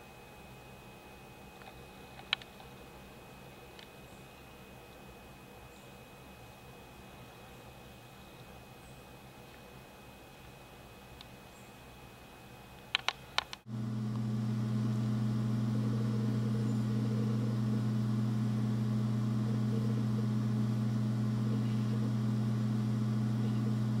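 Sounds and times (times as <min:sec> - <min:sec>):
sharp clicks: 0:12.9 - 0:13.6
loud steady low hum: 0:13.6 - 0:24.0.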